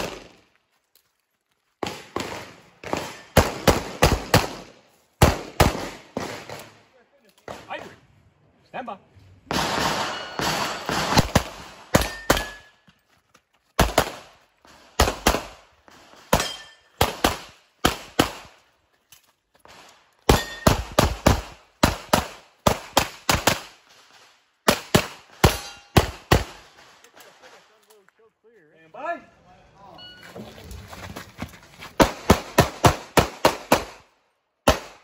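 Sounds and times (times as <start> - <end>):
pistol shots: 9.5 - 12.7, 15.0 - 15.6, 32.0 - 35.0
metallic ring of steel targets: 10.0 - 10.9, 12.0 - 12.8, 16.4 - 17.0, 20.3 - 20.8, 25.4 - 26.0.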